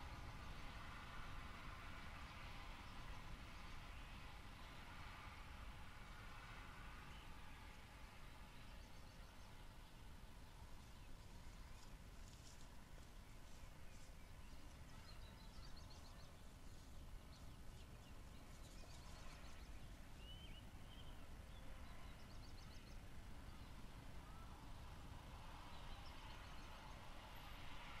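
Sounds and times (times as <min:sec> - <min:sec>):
distant bird chirps and trills: 0:08.4 - 0:28.0.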